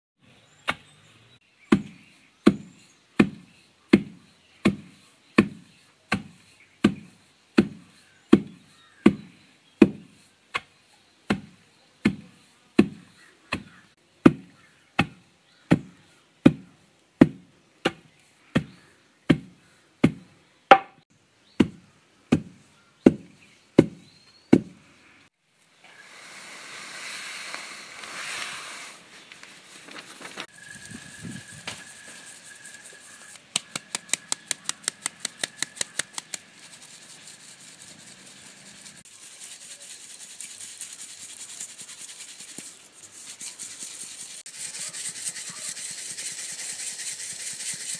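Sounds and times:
wooden pestle pounding in mortar: 0:04.0 - 0:10.1, 0:19.3 - 0:21.0
flour sifting in metal sieve: 0:30.1 - 0:33.4, 0:35.2 - 0:47.9.

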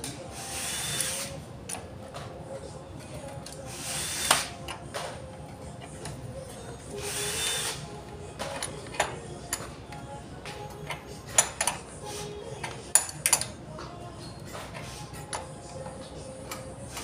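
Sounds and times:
hand ratchet rasping: 0:03.4 - 0:06.2, 0:06.8 - 0:09.7, 0:10.6 - 0:13.5
metal clicks: 0:08.4 - 0:11.9, 0:12.6 - 0:13.6.

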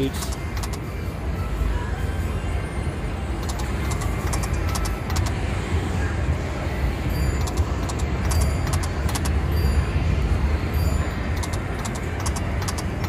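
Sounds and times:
slot machine reels clicking: 0:00.0 - 0:00.8, 0:03.4 - 0:05.4, 0:07.3 - 0:09.4, 0:11.4 - 0:13.0.

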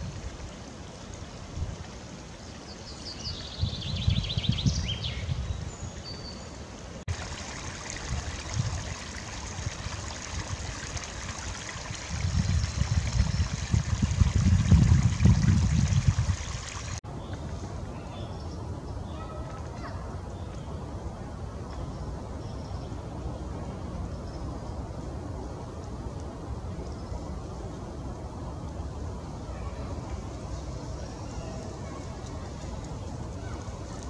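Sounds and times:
stream trickling over stones: 0:00.0 - 0:04.1, 0:07.0 - 0:17.5
wind buffeting microphone: 0:03.4 - 0:05.9, 0:07.1 - 0:17.0.

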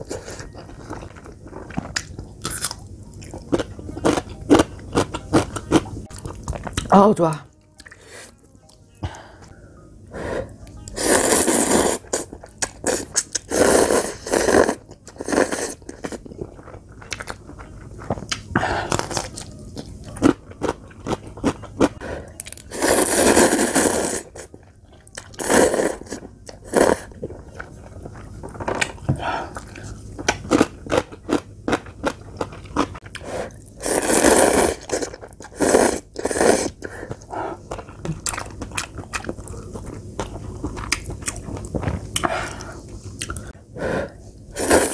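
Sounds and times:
close-up chewing: 0:00.0 - 0:06.9, 0:36.2 - 0:43.6
noodles being slurped: 0:33.8 - 0:36.9.

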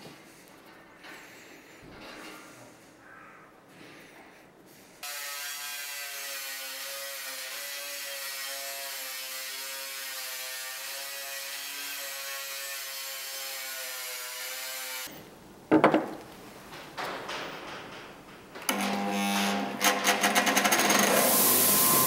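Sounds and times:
bench grinder humming: 0:18.7 - 0:22.0.

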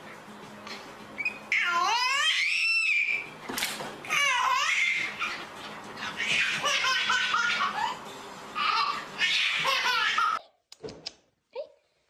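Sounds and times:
baby laughing and squealing: 0:01.2 - 0:03.3, 0:04.0 - 0:08.0, 0:08.6 - 0:10.4.

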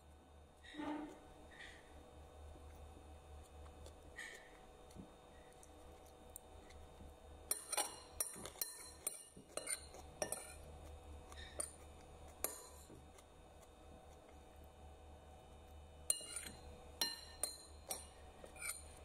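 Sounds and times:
metal spoon clinking on ceramic plate: 0:07.5 - 0:10.6, 0:16.1 - 0:19.0.

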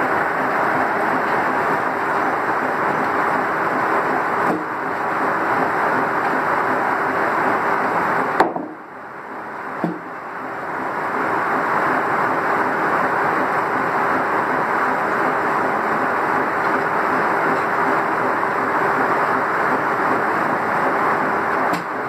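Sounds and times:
sawmill machinery din: 0:00.0 - 0:22.0
sharp knocks of timber: 0:08.4 - 0:08.8, 0:09.8 - 0:10.1.

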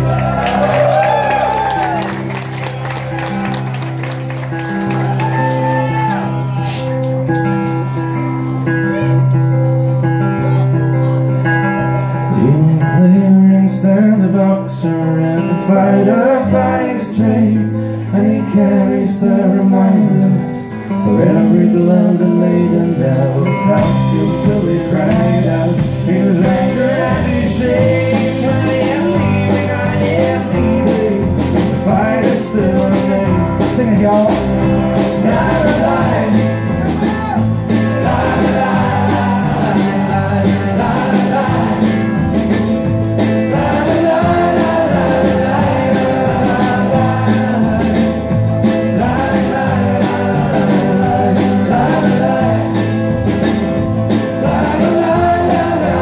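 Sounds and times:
drums: 0:00.0 - 0:56.0
strummed acoustic guitars: 0:00.0 - 0:56.0
upright bass: 0:00.0 - 0:56.0
people singing: 0:12.3 - 0:56.0.

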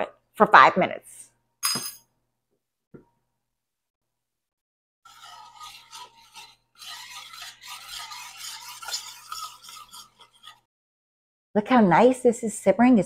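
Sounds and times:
spoon scraping saucepan: 0:05.1 - 0:10.7.

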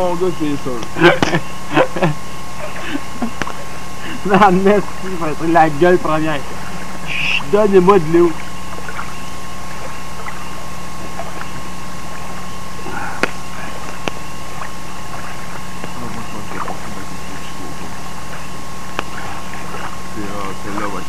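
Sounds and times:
background hiss and hum: 0:00.0 - 0:21.0
campfire popping: 0:02.8 - 0:20.8.

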